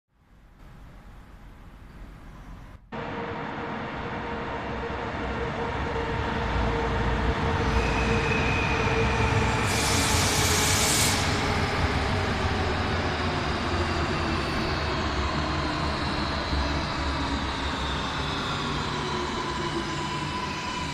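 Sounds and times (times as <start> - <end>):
loud brake hiss: 9.5 - 11.5.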